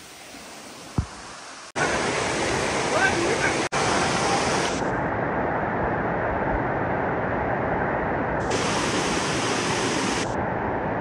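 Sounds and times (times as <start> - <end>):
waterfall rushing: 0.0 - 4.9, 8.4 - 10.4.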